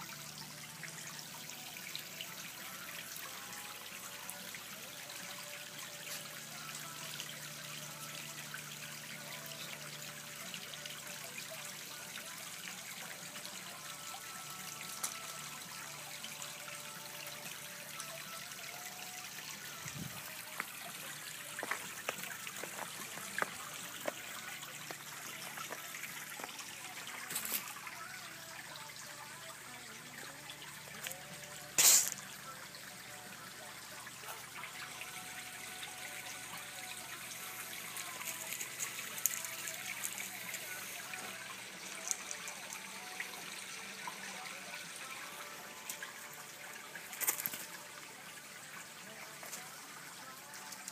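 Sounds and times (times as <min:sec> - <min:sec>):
water trickling: 0:00.0 - 0:50.9.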